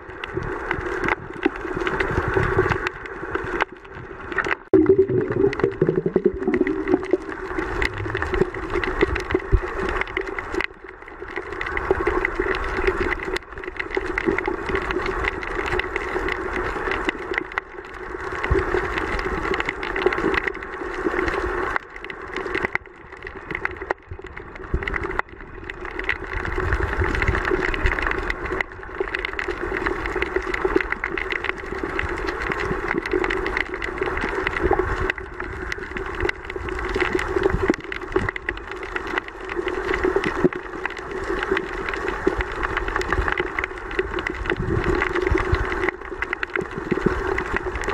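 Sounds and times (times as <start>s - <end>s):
low underwater hum: 0.0s - 47.9s
rushing underwater hiss: 0.5s - 10.6s.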